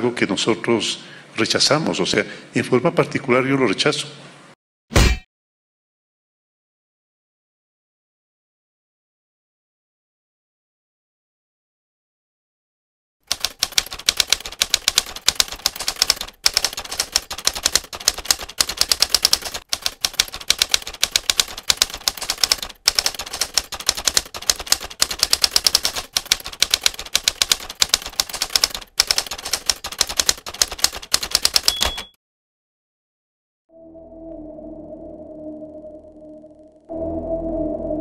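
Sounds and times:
typewriter keys clacking: 13.3s - 32.2s
typewriter bell ring: 31.2s - 32.2s.

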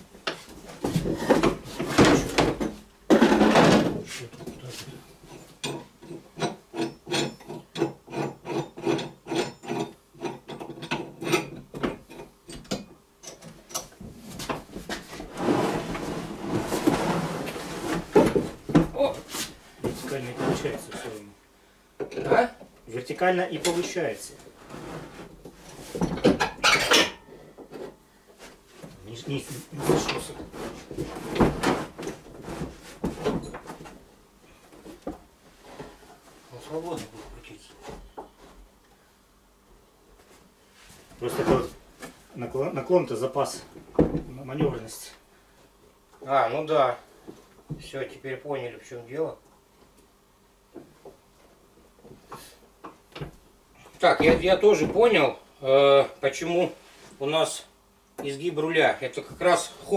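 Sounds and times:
scraping and rubbing: 14.2s - 18.6s, 24.5s - 26.0s, 29.4s - 33.2s.

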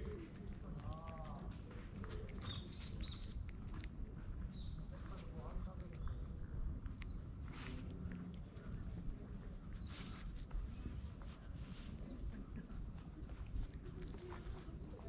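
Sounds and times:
cat tongue rasping on finger: 0.0s - 12.0s, 13.4s - 15.0s
bird chirping: 2.4s - 3.5s.

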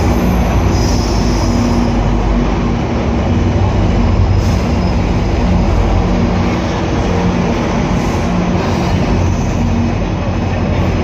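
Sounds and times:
high wheel squeal: 0.0s - 2.1s, 4.3s - 5.4s, 8.0s - 9.8s
train rumbling on rails: 0.0s - 11.0s.

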